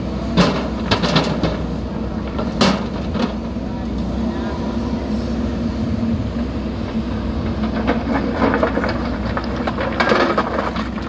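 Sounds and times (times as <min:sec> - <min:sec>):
diesel engine running under load: 0:00.0 - 0:11.0
bucket scraping broken stone: 0:07.5 - 0:11.0.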